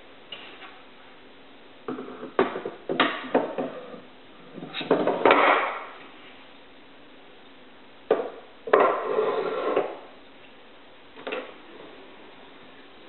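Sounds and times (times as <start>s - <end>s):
wood-on-wood knocks and clatter: 1.9s - 3.8s, 4.6s - 5.8s.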